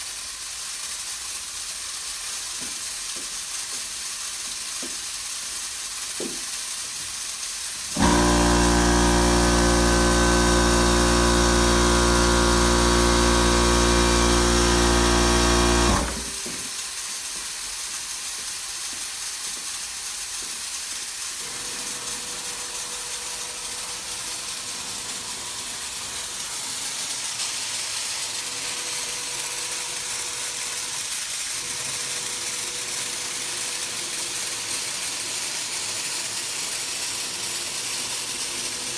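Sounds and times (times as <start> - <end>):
compressed air hissing from spray guns: 0.0 - 38.9
air compressor motor humming: 7.9 - 16.8, 21.4 - 38.9.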